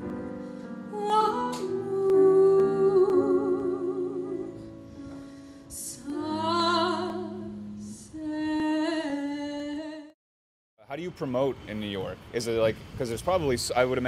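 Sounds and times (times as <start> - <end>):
keyboard accompaniment: 0.0 - 9.4
woman singing opera-like: 0.9 - 10.2.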